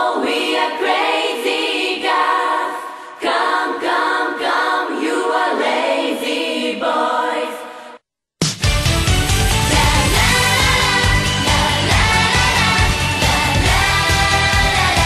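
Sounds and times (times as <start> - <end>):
chorus singing unaccompanied: 0.0 - 8.0, 9.7 - 15.0
pop backing track with bass: 8.6 - 15.0.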